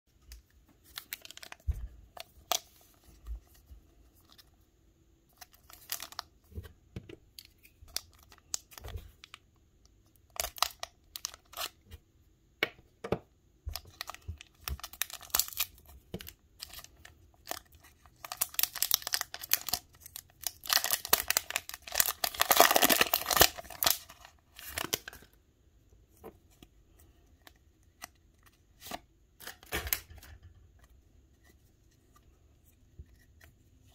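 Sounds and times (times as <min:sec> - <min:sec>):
foil wrapper crinkling: 0:16.6 - 0:25.3
foil pack ripping open: 0:20.4 - 0:24.0.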